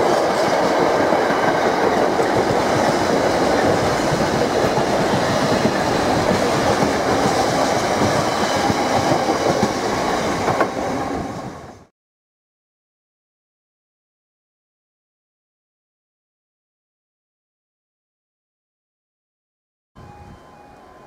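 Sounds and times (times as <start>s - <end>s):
train wheels on rails: 0.0s - 11.9s.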